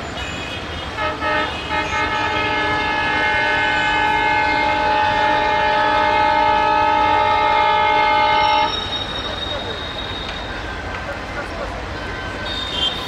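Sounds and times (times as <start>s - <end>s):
locomotive air horn blast: 0.6s - 10.5s.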